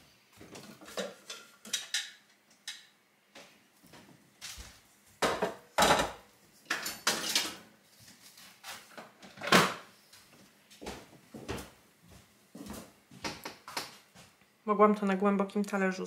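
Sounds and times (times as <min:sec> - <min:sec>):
dishes and cupboard doors clattering: 0:00.5 - 0:02.2, 0:05.2 - 0:07.7.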